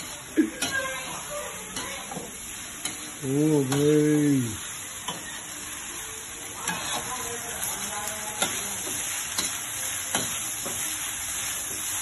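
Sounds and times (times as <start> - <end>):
spatula clacking on wok: 0.0 - 1.0, 1.7 - 4.0, 8.1 - 10.9
rice sizzling in a wok: 0.0 - 12.0.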